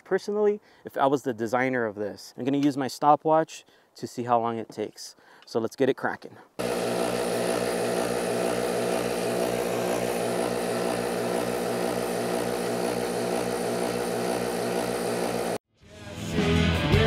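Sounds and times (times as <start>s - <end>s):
air compressor running: 6.6s - 15.6s.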